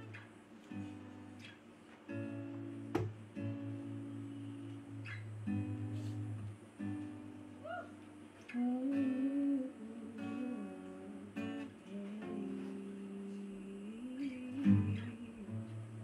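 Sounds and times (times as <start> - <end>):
acoustic guitar playing: 0.0 - 16.0
person humming a melody: 8.5 - 16.0.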